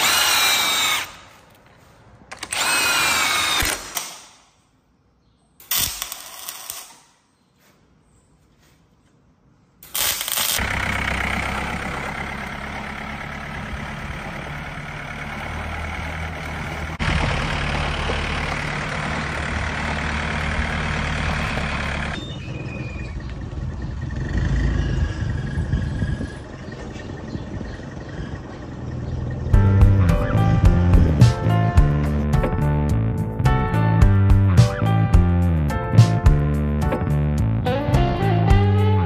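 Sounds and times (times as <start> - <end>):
tractor engine running: 10.2 - 39.0.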